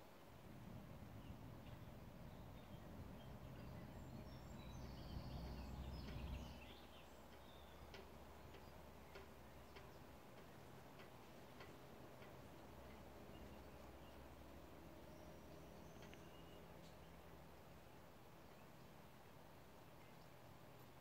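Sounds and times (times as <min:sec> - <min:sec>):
low rumble: 0:00.4 - 0:06.8
regular sharp ticking: 0:00.5 - 0:18.6.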